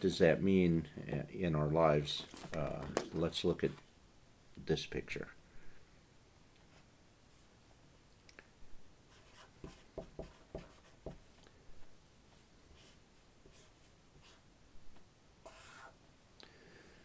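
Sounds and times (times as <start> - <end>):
pen scratching on paper: 9.1 - 11.2, 15.5 - 16.0.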